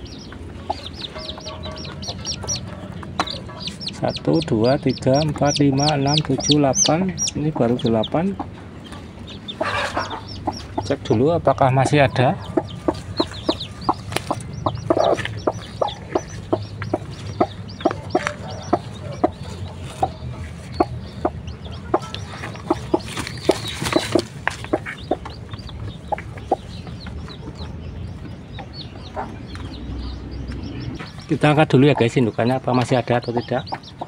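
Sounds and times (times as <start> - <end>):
chicks peeping: 0.0 - 34.0
hen clucking: 0.0 - 34.0.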